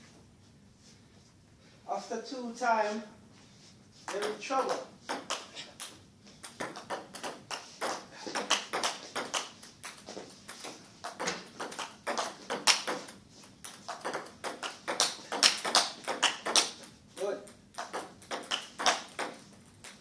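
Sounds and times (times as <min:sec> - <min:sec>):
table tennis ball pinging: 0:04.1 - 0:20.0.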